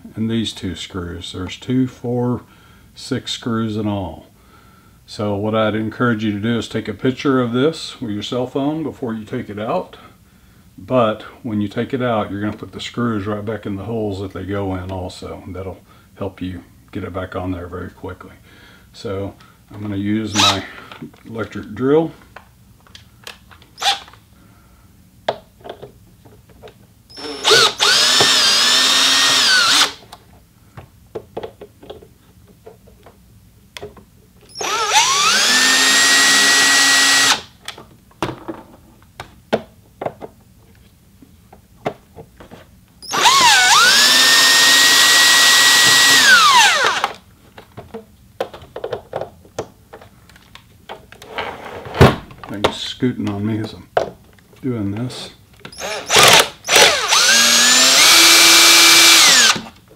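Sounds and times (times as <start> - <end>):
cordless drill motor whine: 20.4 - 20.6, 27.1 - 30.0, 34.5 - 37.5, 43.0 - 47.2, 55.8 - 59.7.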